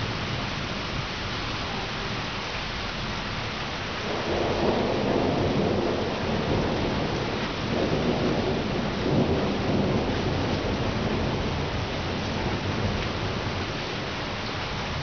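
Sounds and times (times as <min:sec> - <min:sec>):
rain hiss: 0:00.0 - 0:15.0
thunder rumbling: 0:04.0 - 0:14.2.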